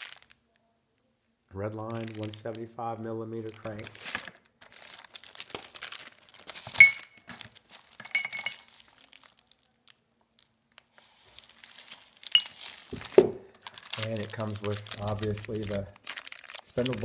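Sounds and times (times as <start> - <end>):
plastic bag crinkling: 0.0 - 0.6, 1.6 - 2.7, 3.3 - 17.0
metal parts clinking together: 8.0 - 8.6
dull thud of object set down: 12.9 - 13.5.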